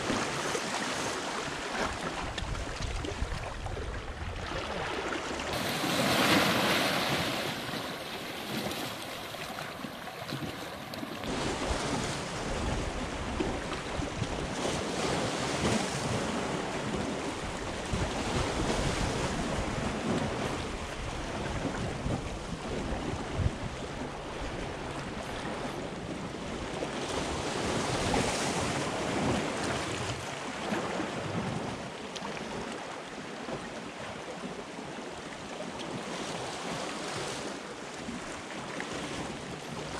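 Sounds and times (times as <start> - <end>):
wind rumbling on microphone: 0.0 - 31.9
waves splashing over rocks: 0.0 - 39.9.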